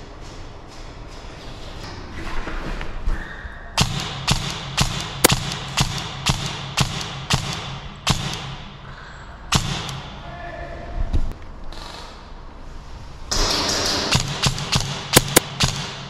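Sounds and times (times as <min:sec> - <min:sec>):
airsoft rifle firing single shots: 0:03.8 - 0:08.7, 0:13.4 - 0:16.0.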